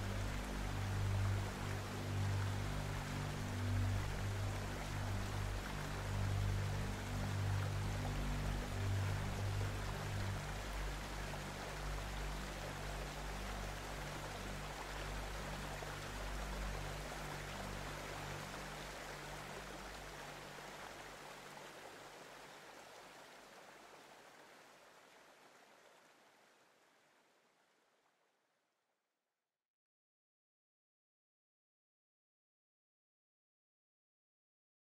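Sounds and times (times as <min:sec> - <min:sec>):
flowing water rushing: 0:00.0 - 0:27.6.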